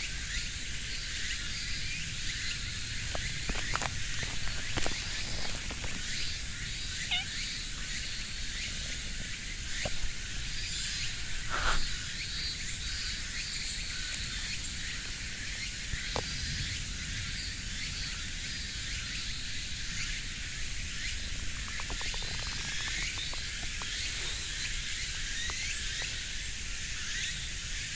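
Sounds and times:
high-pitched outdoor hiss: 0:00.0 - 0:27.9
soft clicks and rustles: 0:03.1 - 0:06.4.

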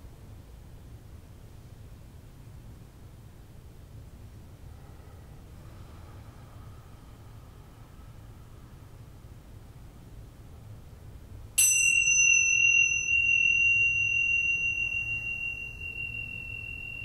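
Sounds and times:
high-pitched bell ringing: 0:11.6 - 0:17.0.

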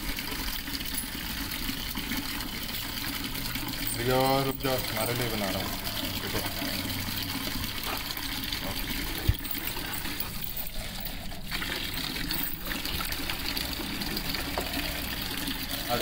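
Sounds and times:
tap water splashing into basin: 0:11.5 - 0:15.8.

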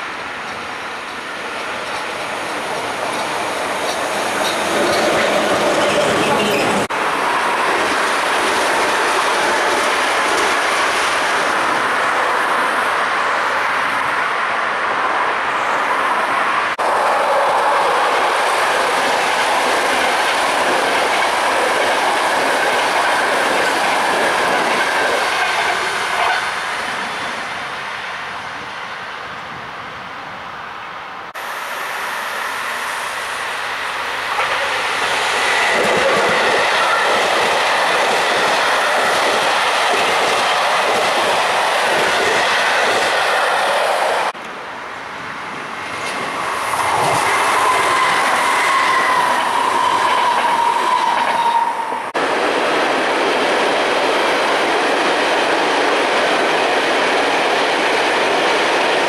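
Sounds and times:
train wheels clattering on rails: 0:00.0 - 0:11.9, 0:18.0 - 0:27.1, 0:34.2 - 0:44.4.

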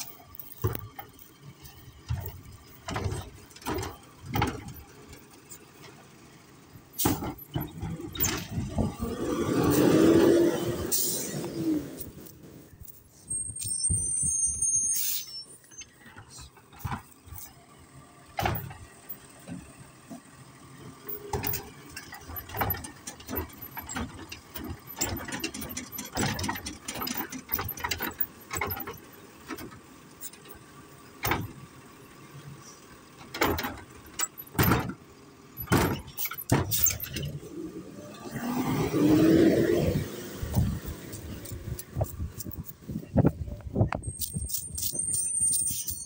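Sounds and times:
cart knocking and banging: 0:00.0 - 0:06.1, 0:06.9 - 0:09.2, 0:16.1 - 0:17.5, 0:18.3 - 0:20.3, 0:20.9 - 0:30.6, 0:31.2 - 0:31.7, 0:33.2 - 0:37.4, 0:40.4 - 0:45.9
truck engine running: 0:00.0 - 0:14.7, 0:15.6 - 0:46.0
lifting arm squealing: 0:13.2 - 0:16.0.

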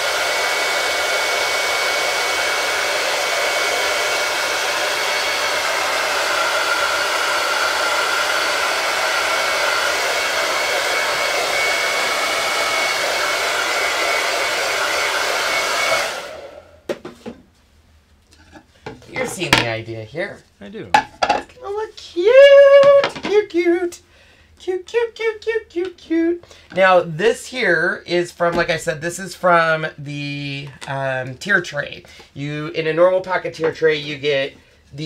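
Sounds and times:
hot-air dryer blowing: 0:00.0 - 0:16.9, 0:22.1 - 0:23.8.

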